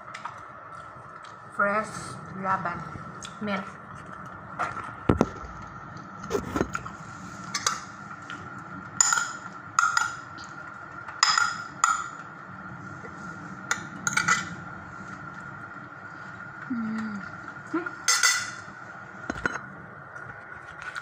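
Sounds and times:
steady low hum: 0.0s - 21.0s
spoon clinking on ceramic plates: 11.2s - 12.1s, 18.1s - 18.6s.

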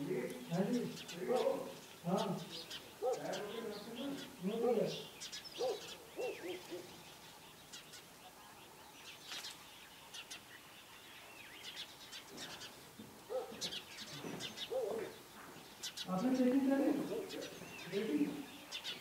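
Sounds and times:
distant voices: 0.0s - 7.0s
small birds chirping: 0.0s - 19.0s.

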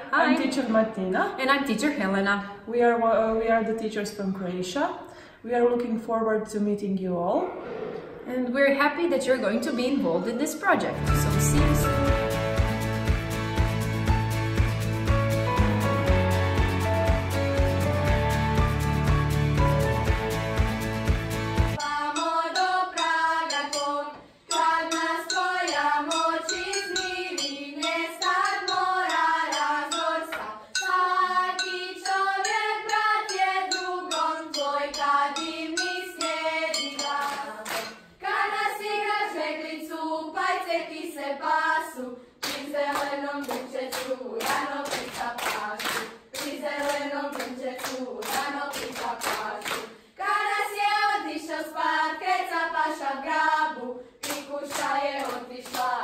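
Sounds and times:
choir singing: 9.9s - 12.8s, 21.7s - 56.0s
people clapping in time: 37.0s - 38.0s, 42.4s - 50.0s, 54.2s - 56.0s.

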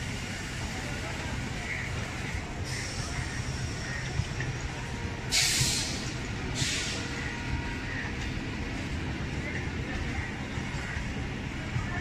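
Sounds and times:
train rolling with low rumble: 0.0s - 12.0s
air brakes hissing: 5.3s - 7.2s.

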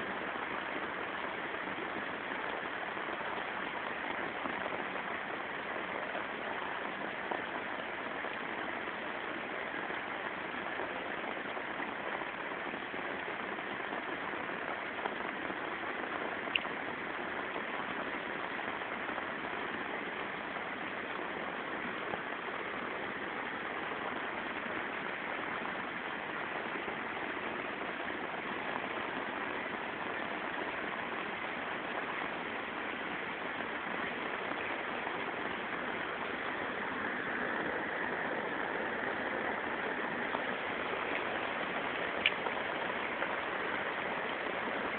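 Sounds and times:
heavy rain hissing: 0.0s - 44.9s
faint tick: 42.2s - 42.4s.

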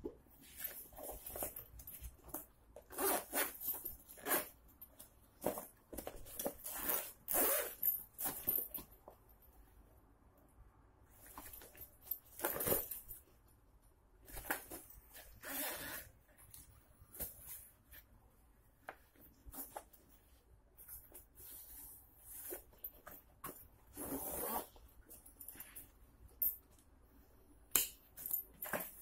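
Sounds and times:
backpack zippers pulled: 2.9s - 3.6s, 6.6s - 7.8s, 15.4s - 16.1s, 23.9s - 24.8s.

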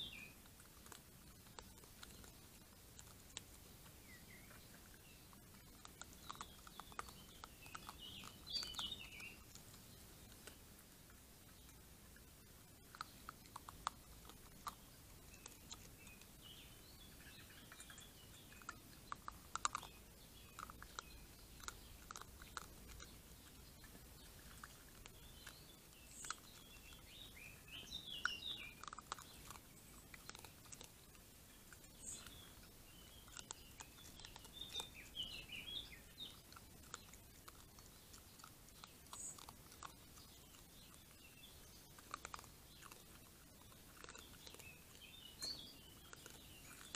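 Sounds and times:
raccoon chewing dry kibble: 0.0s - 46.9s.

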